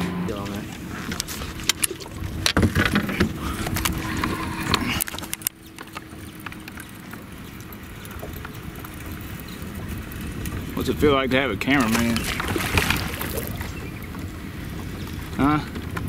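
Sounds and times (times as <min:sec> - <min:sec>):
low rumble: 0:00.0 - 0:05.5
steady low hum: 0:00.0 - 0:16.0.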